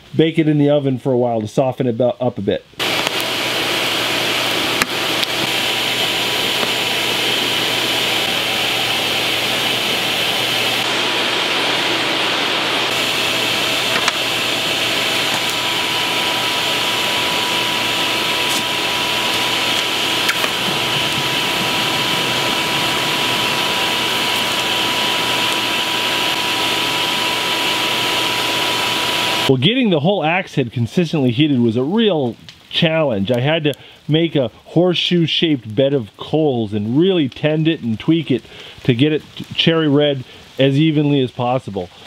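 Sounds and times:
shop vacuum blowing air: 0:02.8 - 0:29.6.

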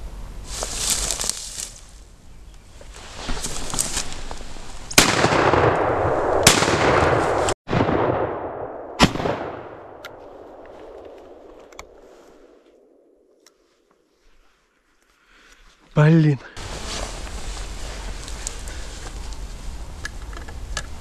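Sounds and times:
shotgun shots echoing: 0:04.9 - 0:11.4.

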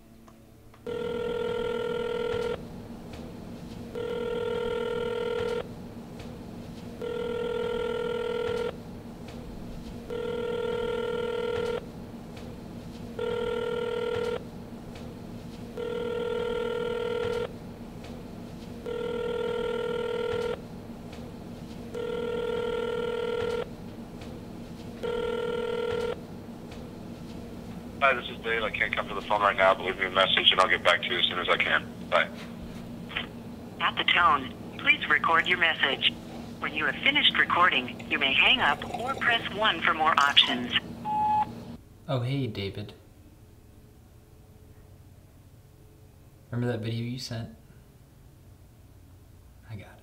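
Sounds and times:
steady low hum: 0:00.0 - 0:50.0
telephone ringing: 0:00.8 - 0:02.6, 0:03.9 - 0:05.7, 0:07.0 - 0:08.8, 0:10.1 - 0:11.8, 0:13.2 - 0:14.4, 0:15.8 - 0:17.5, 0:18.8 - 0:20.6, 0:21.9 - 0:23.7, 0:25.0 - 0:26.2, 0:36.6 - 0:41.5.

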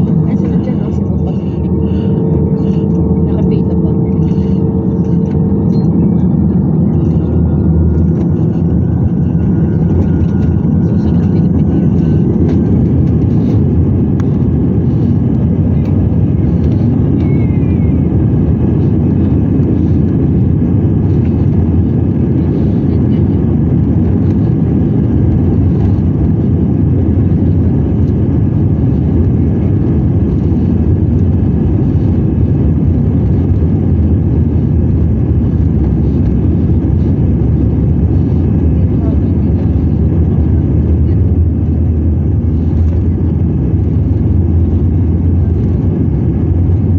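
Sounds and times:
aircraft cabin engine rumble: 0:00.0 - 0:46.9.

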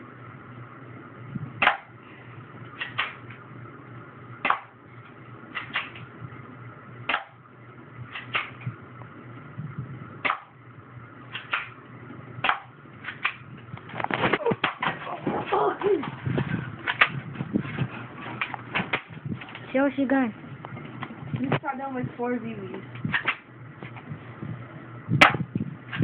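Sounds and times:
bb pistol shots: 0:04.4 - 0:04.7, 0:11.3 - 0:11.8, 0:12.4 - 0:13.4, 0:25.2 - 0:25.4.

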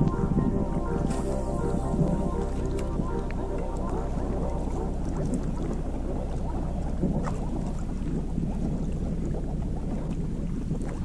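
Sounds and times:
boat motor drone: 0:00.0 - 0:09.8
water rushing along hull: 0:00.0 - 0:11.0
wind on microphone: 0:00.0 - 0:11.0.

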